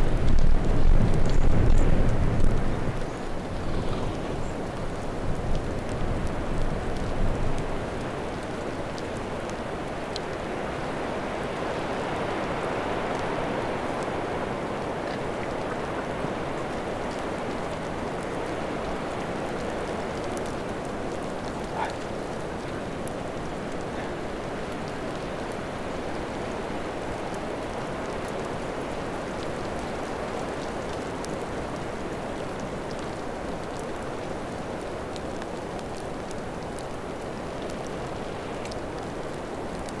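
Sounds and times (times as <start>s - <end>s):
raindrop ticks: 0.0s - 11.7s, 12.4s - 40.0s
wind rumble on microphone: 0.0s - 36.1s
steady rain hiss: 0.0s - 40.0s.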